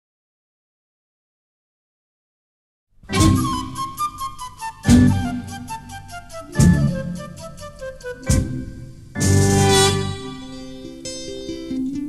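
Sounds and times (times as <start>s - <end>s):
plucked string instrumental music: 3.1s - 12.0s.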